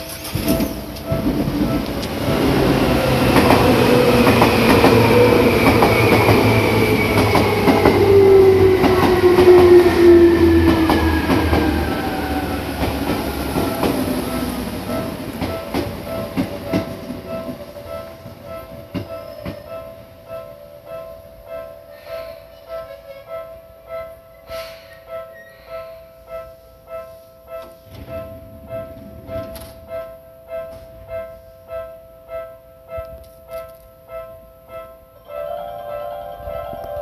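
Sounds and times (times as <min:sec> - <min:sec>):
level crossing warning bell: 0:00.0 - 0:24.2, 0:34.1 - 0:37.0
electric train rumbling past: 0:00.0 - 0:33.0, 0:34.1 - 0:37.0.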